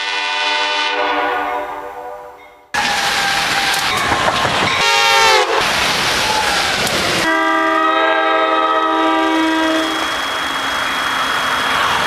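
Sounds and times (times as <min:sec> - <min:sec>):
short horn blast: 0:00.0 - 0:02.4, 0:07.2 - 0:10.6
multi-chime train horn chord: 0:00.0 - 0:02.7
train passing at speed: 0:00.0 - 0:12.0.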